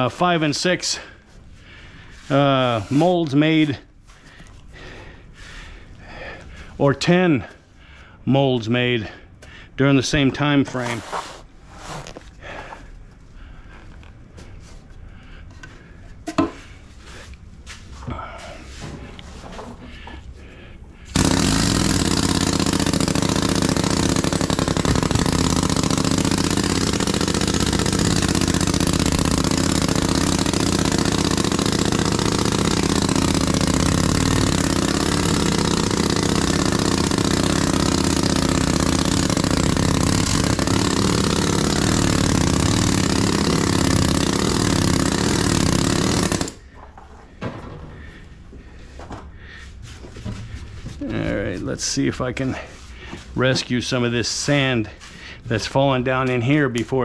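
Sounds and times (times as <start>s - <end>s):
pneumatic sand rammer hammering: 2.3s - 3.7s, 21.0s - 46.8s.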